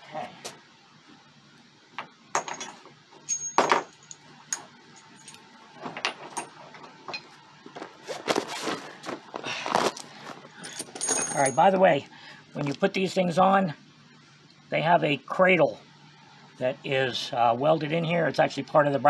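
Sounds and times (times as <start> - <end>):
metal parts clanking and rattling: 2.4 - 4.2, 10.6 - 11.8.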